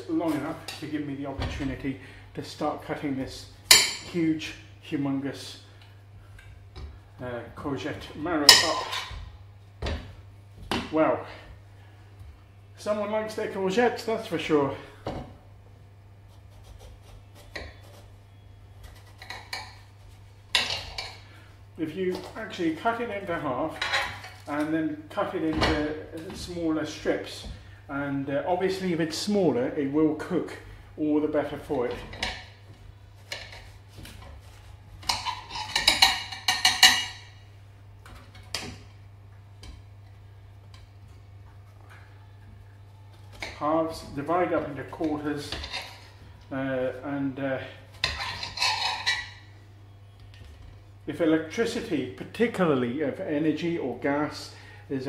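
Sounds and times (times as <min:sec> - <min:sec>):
steady low hum: 0:00.0 - 0:55.0
knife cutting on chopping board: 0:16.3 - 0:18.1.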